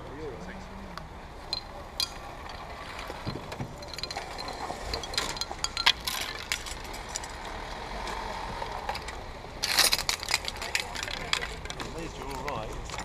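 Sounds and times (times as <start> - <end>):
small hard objects clinking: 1.5 - 7.5, 8.8 - 13.0.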